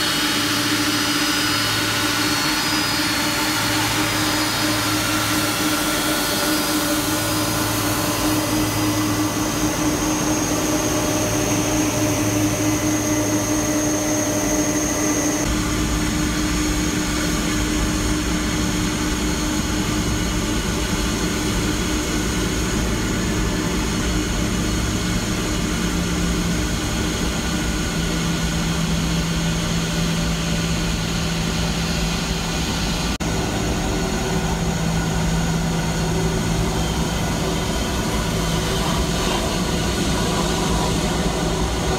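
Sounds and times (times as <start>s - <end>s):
jet engine whine and rumble: 0.0s - 41.9s.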